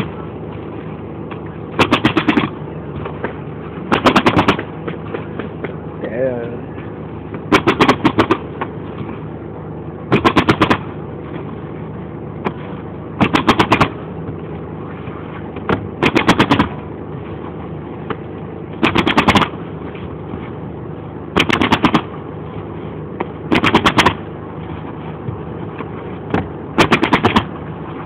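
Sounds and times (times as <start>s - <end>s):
steady hum: 0.0s - 28.0s
nail gun firing bursts: 1.8s - 2.5s, 3.9s - 4.6s, 7.5s - 8.4s, 10.1s - 10.8s, 13.2s - 13.9s, 16.0s - 16.7s, 18.8s - 19.5s, 21.4s - 22.1s, 23.5s - 24.2s, 26.8s - 27.5s.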